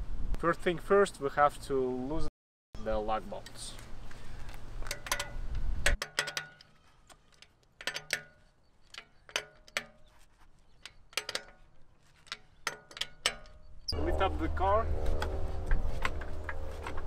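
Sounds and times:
low hum: 13.3 - 17.0.

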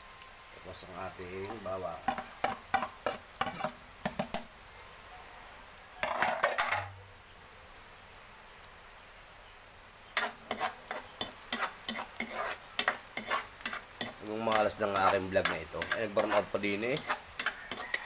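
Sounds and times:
onion and garlic sizzling: 0.0 - 18.0
metal spatula scraping wok: 1.5 - 3.8, 10.2 - 18.0.

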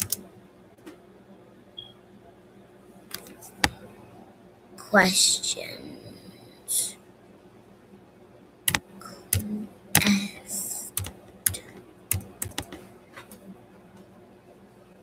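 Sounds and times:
computer keyboard typing: 0.0 - 0.2, 3.1 - 3.8, 8.7 - 10.2, 10.9 - 12.8.

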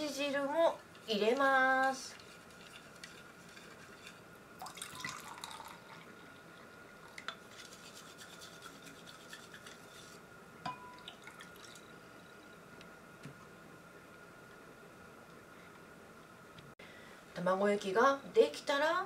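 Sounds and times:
broth dripping into bowl: 4.6 - 7.4, 10.7 - 12.7.

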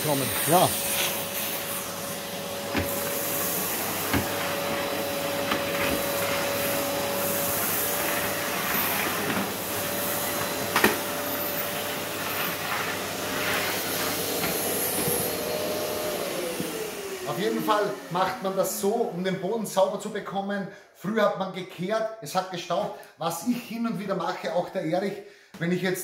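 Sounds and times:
vacuum cleaner whining: 0.0 - 20.4.

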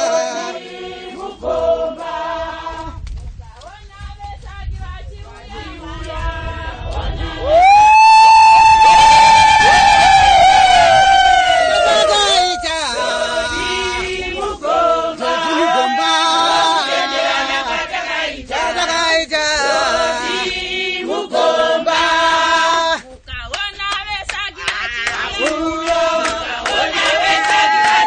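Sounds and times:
group of women singing: 0.0 - 3.0, 3.6 - 7.8, 13.0 - 23.0, 23.6 - 28.0.

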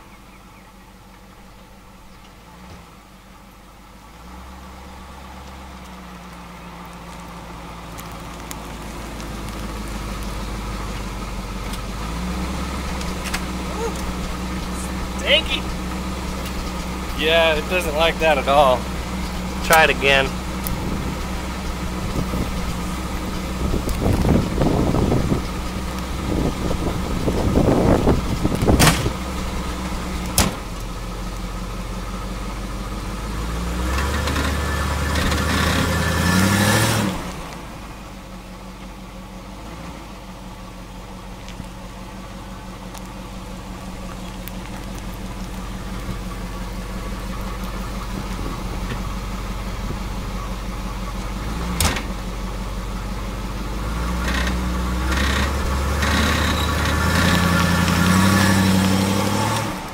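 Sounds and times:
car engine idling and revving: 0.0 - 59.9.

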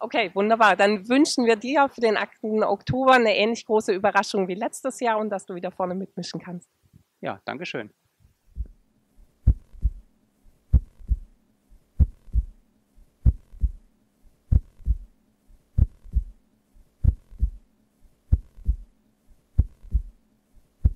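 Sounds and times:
faint steady hum: 0.0 - 20.9
heartbeat double low thumps: 8.5 - 8.8, 9.4 - 10.1, 10.7 - 11.3, 12.0 - 12.6, 13.2 - 13.8, 14.5 - 15.1, 15.8 - 16.4, 17.0 - 17.6, 18.3 - 18.9, 19.6 - 20.2.

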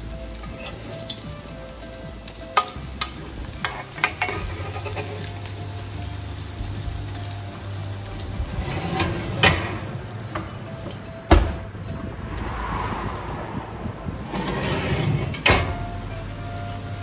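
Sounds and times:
hot oil sizzling: 0.0 - 11.6, 12.5 - 17.0
oven door thump: 11.3 - 11.7, 14.2 - 15.8.

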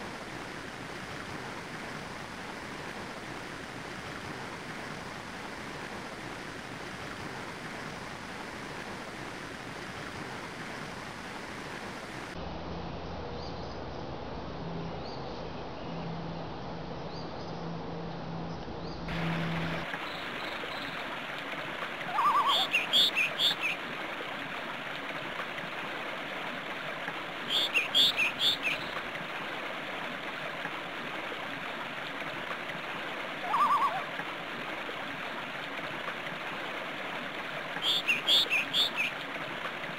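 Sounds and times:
flowing water rushing: 0.0 - 12.4, 19.1 - 39.9
birds chirping: 22.1 - 23.8, 27.5 - 29.0, 37.8 - 39.1
lower bird call: 22.1 - 23.8, 27.5 - 28.9, 33.4 - 34.1, 37.8 - 39.1.

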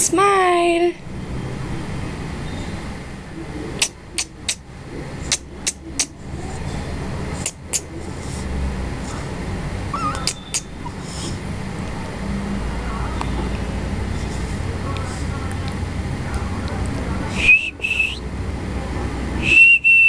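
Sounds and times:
steady low hum: 0.0 - 20.0
sharp mouth clicks: 3.8 - 4.6, 5.3 - 6.2, 7.4 - 8.0, 10.0 - 11.4.

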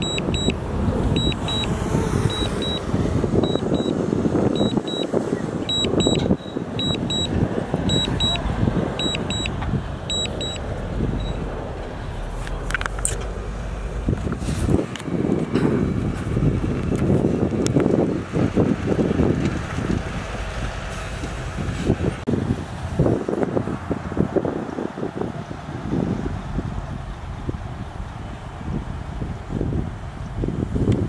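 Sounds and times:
reversing alarm beeping: 0.0 - 0.6, 1.2 - 5.1, 5.7 - 8.4, 9.0 - 11.5
diesel engines running: 0.0 - 31.0.

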